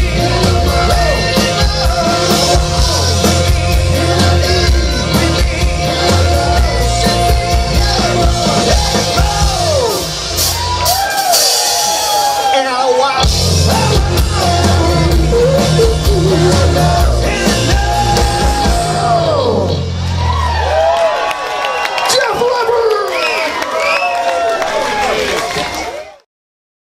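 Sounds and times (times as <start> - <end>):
bass guitar: 0.0 - 12.5, 13.2 - 21.2
electric guitar: 0.0 - 12.5, 13.2 - 21.2
keyboard: 0.0 - 20.5
drums: 0.0 - 23.6
shouted vocals: 0.0 - 26.2.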